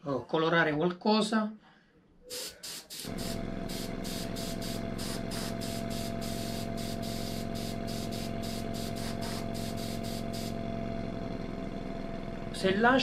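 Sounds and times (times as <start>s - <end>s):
airbrush air hissing: 2.3s - 10.6s
compressor motor hum: 2.6s - 13.0s.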